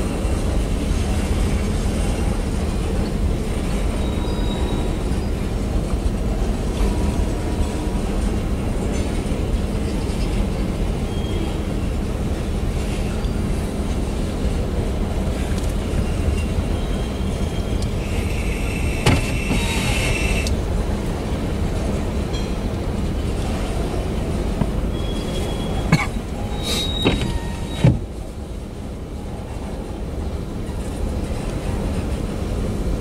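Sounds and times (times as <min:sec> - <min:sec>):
train wheels rumbling on rail: 0:00.0 - 0:33.0
high wheel squeal: 0:03.8 - 0:05.5, 0:15.9 - 0:20.5, 0:24.9 - 0:28.0.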